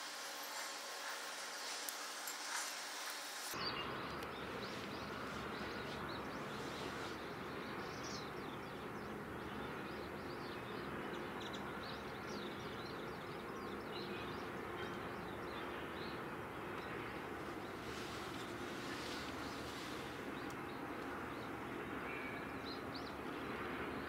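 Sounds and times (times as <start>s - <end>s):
thin hiss: 0.0s - 3.6s.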